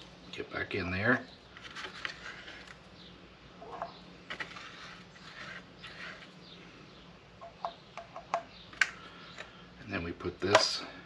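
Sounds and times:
stick scraping plastic container: 4.3s - 6.4s.

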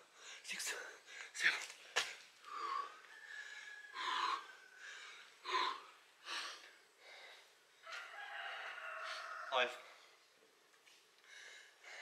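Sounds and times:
person breathing hard: 2.4s - 7.8s, 11.2s - 12.0s.

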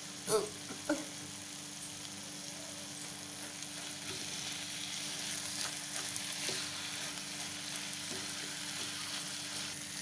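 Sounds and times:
vegetables sizzling in oil: 0.0s - 10.0s
spatula stirring and scraping pan: 3.2s - 9.8s.

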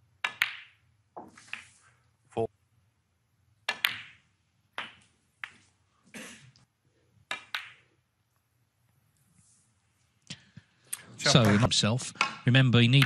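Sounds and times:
snooker balls clicking: 0.2s - 1.8s, 3.6s - 5.8s, 7.2s - 8.4s, 11.3s - 13.0s.

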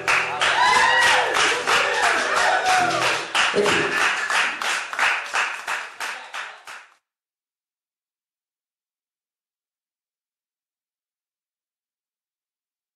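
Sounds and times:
small audience clapping: 0.0s - 7.0s.

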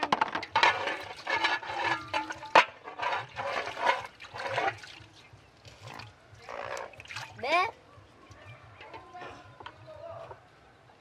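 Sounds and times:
water splashing in basins: 0.0s - 7.8s
dish clinking: 0.2s - 4.6s.

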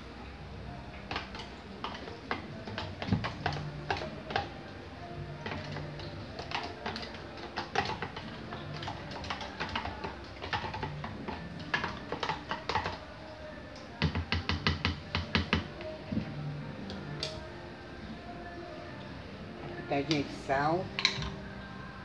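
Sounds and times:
utensil tapping plastic blender jar: 5.4s - 13.0s, 14.0s - 15.7s.

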